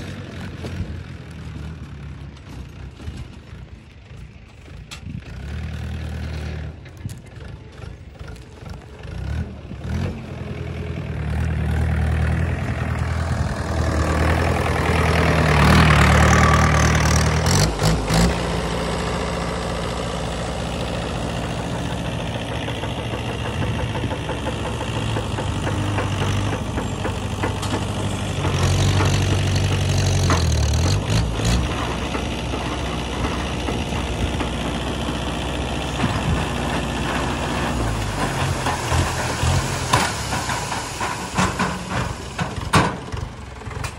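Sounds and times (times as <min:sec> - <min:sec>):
tractor diesel engine under load: 0:00.0 - 0:43.9
soil sliding out of trailer: 0:24.5 - 0:43.9.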